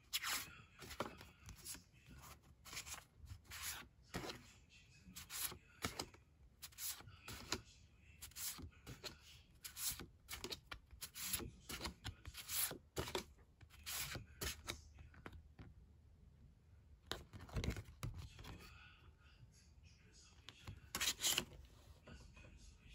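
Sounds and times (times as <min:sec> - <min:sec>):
postcards flipping with papery swish: 0:00.1 - 0:04.4, 0:05.2 - 0:07.6, 0:08.2 - 0:14.8.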